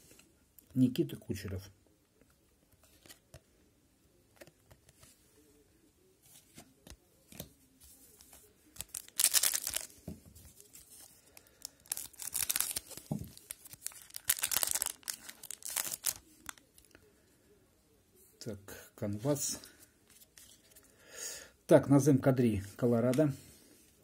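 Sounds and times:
faint clicks of cards handled: 0:02.1 - 0:03.5, 0:04.3 - 0:05.2, 0:06.2 - 0:09.0
wrapper tearing and crinkling: 0:08.8 - 0:09.9, 0:11.6 - 0:16.6.

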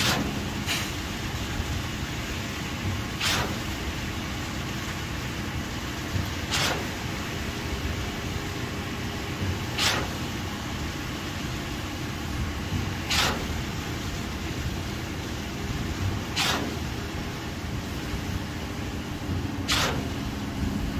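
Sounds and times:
engine rumbling: 0:00.0 - 0:20.9
short falling hiss: 0:19.6 - 0:20.2.

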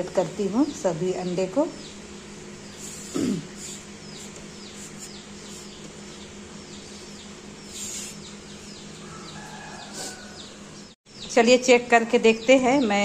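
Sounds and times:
steady low hum: 0:00.0 - 0:13.0
chicks peeping: 0:02.6 - 0:11.4.

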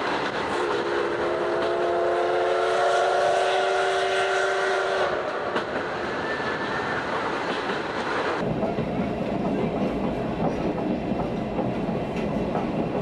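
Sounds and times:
train running noise: 0:00.0 - 0:13.0
steam locomotive whistle: 0:00.5 - 0:05.6.

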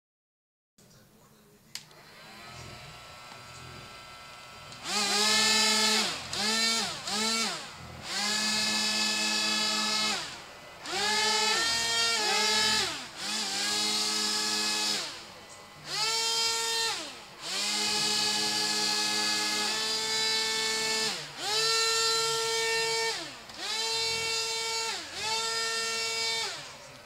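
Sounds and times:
click: 0:01.7 - 0:02.0
small fan motors whining: 0:01.7 - 0:27.0.

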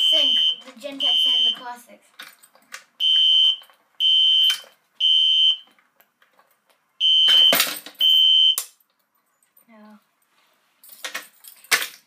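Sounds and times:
fire alarm horn beeps: 0:00.0 - 0:01.6, 0:03.0 - 0:05.6, 0:07.0 - 0:08.6.

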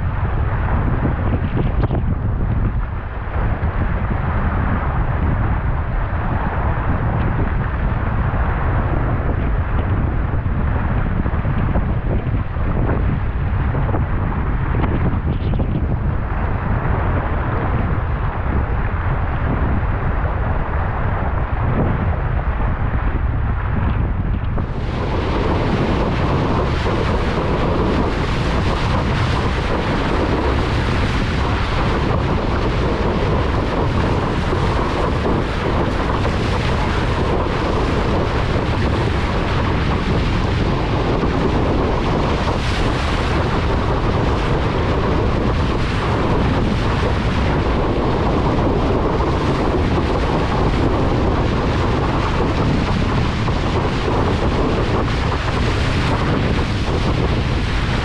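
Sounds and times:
wind buffeting microphone: 0:00.0 - 0:58.0
water rushing and splashing: 0:24.6 - 0:58.0.

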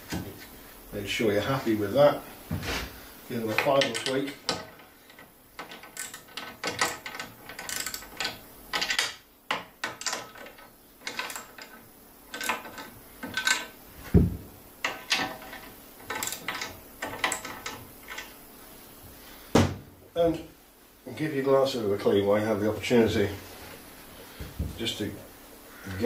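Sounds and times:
spanner clicking on metal nuts: 0:03.5 - 0:13.8, 0:14.8 - 0:18.3.

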